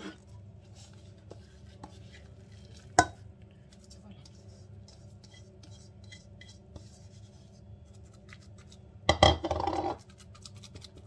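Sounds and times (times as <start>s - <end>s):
plastic bowl clattering on countertop: 9.1s - 10.0s.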